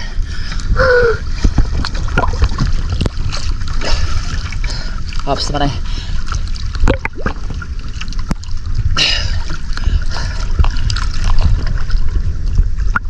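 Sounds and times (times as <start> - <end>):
sea water sloshing: 0.0 - 13.0
water dripping: 6.5 - 11.6.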